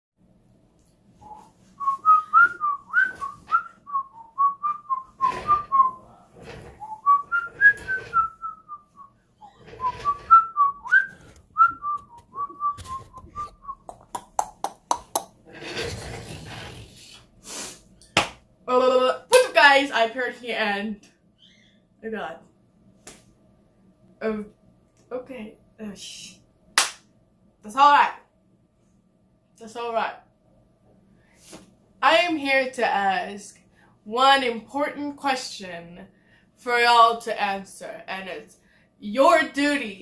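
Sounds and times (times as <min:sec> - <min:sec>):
person whistling a tune: 0:01.2 - 0:06.0, 0:06.8 - 0:09.1, 0:09.8 - 0:13.9.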